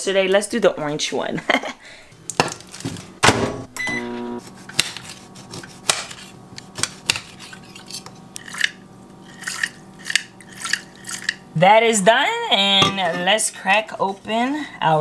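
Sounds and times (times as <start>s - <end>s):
steady low hum: 1.5s - 15.0s
short electronic beep: 3.8s - 4.4s.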